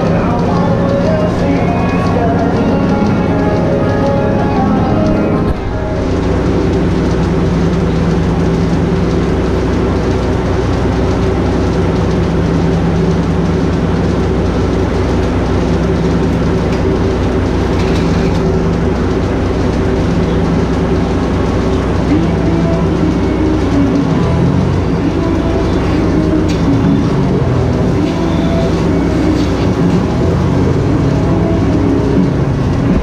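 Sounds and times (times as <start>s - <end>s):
machinery humming: 0.0s - 33.0s.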